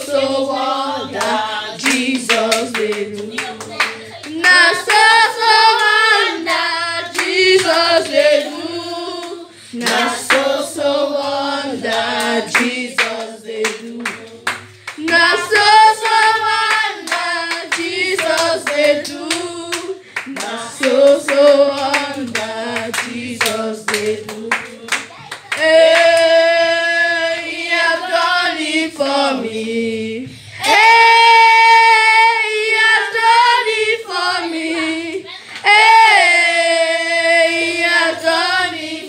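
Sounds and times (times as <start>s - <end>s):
hands clapping on the beat: 1.1s - 10.6s, 11.3s - 26.4s.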